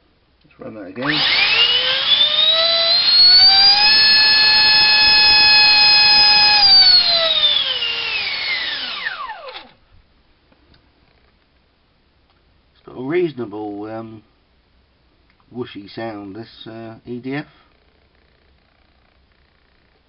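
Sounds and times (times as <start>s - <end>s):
electric ducted fan whining: 0.6s - 9.9s.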